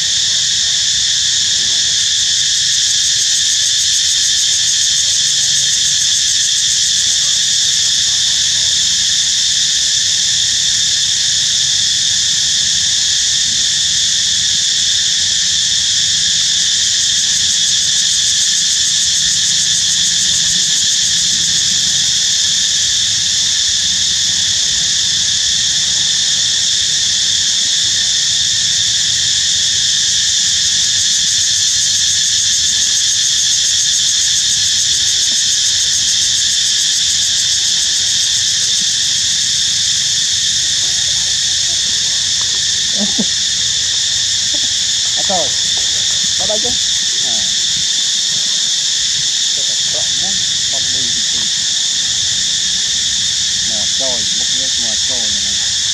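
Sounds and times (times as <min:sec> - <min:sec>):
insects buzzing: 0:00.0 - 0:55.9.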